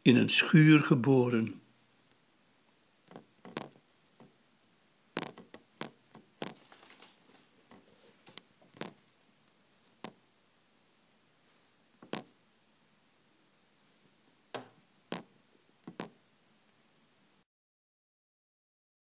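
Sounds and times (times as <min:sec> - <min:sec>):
faint clicks and rustles: 0:03.0 - 0:04.4, 0:05.1 - 0:10.2.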